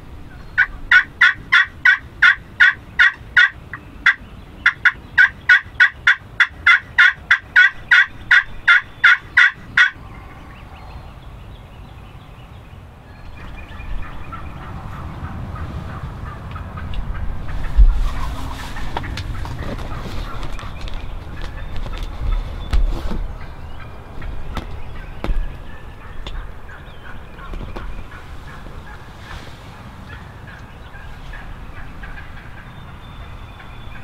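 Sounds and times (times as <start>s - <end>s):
turkey yelping: 0.4s - 10.6s, 13.3s - 22.4s, 23.3s - 34.0s.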